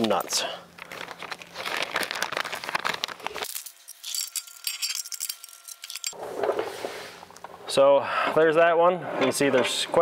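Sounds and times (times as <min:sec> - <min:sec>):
screws and nuts clinking: 0:03.4 - 0:06.2.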